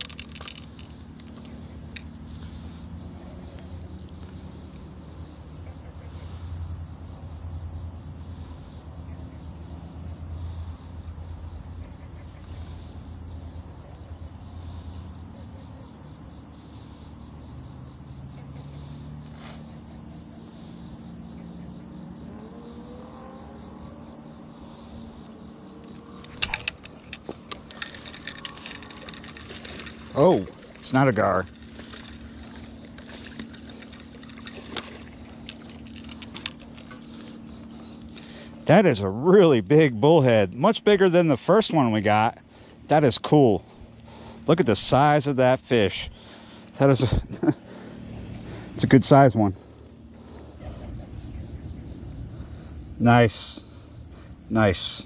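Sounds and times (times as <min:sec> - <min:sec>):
fishing rod and reel clicks: 0:00.0 - 0:02.6, 0:25.8 - 0:38.2
crickets chirping: 0:00.0 - 0:55.0
low hum: 0:16.4 - 0:38.8.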